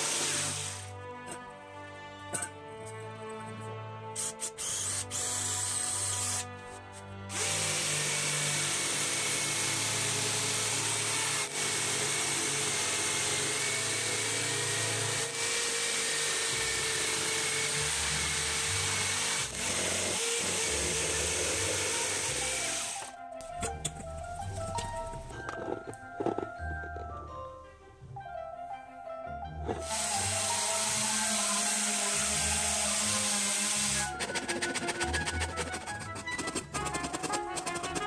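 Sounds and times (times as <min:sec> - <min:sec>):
electric jigsaw whining: 0:00.0 - 0:00.9, 0:04.2 - 0:06.5, 0:07.3 - 0:23.1, 0:29.7 - 0:38.0
power drill boring wood: 0:00.0 - 0:00.9, 0:04.2 - 0:06.5, 0:07.3 - 0:23.2, 0:29.6 - 0:38.0.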